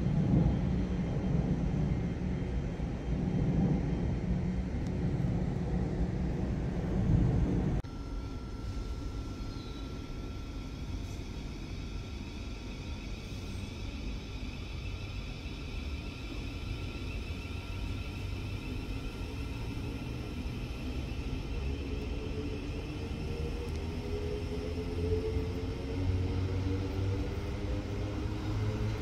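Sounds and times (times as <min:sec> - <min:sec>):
tram rumbling on track: 0:00.0 - 0:29.0.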